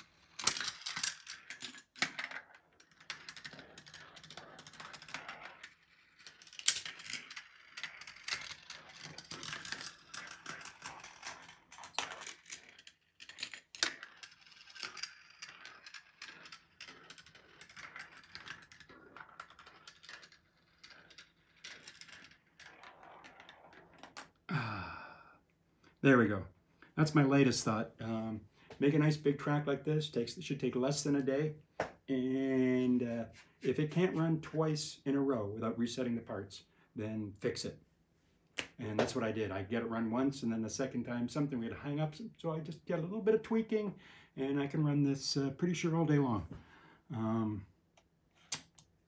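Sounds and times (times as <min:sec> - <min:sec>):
marbles rattling through plastic track: 0:00.0 - 0:24.4.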